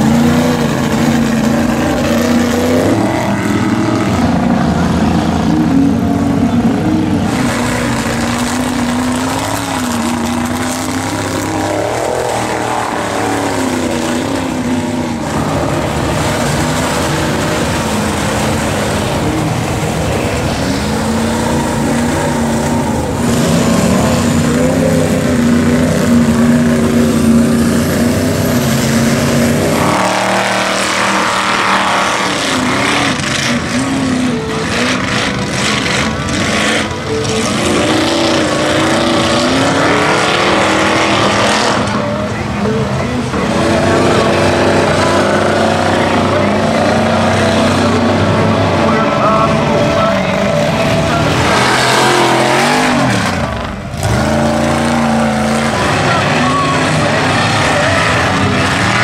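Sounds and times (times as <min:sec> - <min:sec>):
truck engine revving: 0:00.0 - 0:59.0.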